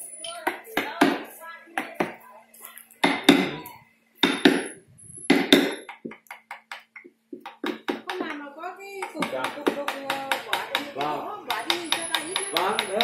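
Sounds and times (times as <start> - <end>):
mallet striking chisel into wood: 3.0 - 3.5, 4.2 - 4.7, 5.3 - 8.4, 9.0 - 13.0.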